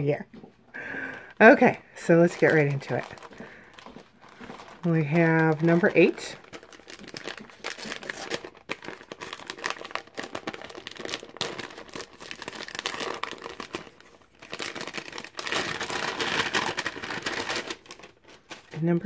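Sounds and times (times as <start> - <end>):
plastic sleeve crinkling: 1.0 - 19.0
paper rustling and crinkling: 2.2 - 19.0
paper envelope tearing: 4.3 - 18.8.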